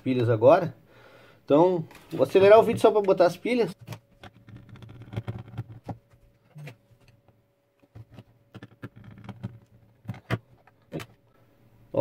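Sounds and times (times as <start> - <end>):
clicks and knocks of plastic case: 7.8 - 11.2.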